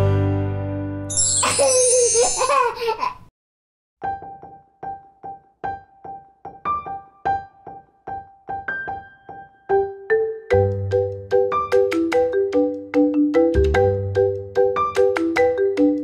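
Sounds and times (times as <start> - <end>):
plinking background music: 0.0 - 2.6, 9.6 - 16.0
squeaky vocal sound: 1.2 - 2.7.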